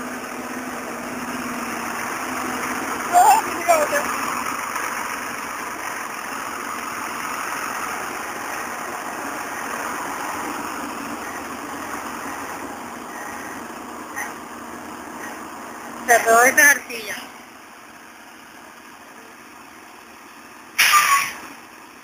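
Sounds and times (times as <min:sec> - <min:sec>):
excavator diesel engine running: 0:00.0 - 0:22.0.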